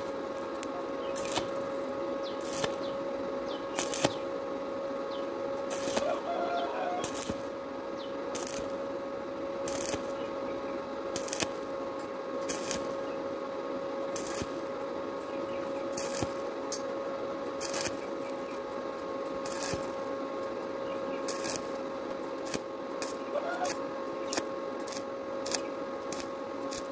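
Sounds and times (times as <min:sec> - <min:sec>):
steady hum: 0:00.0 - 0:26.9
welding arc crackling: 0:00.0 - 0:26.9.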